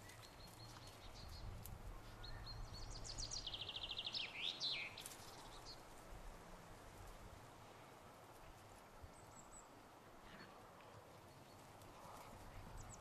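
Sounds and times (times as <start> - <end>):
songbird singing: 0.0 - 6.0, 8.9 - 13.0.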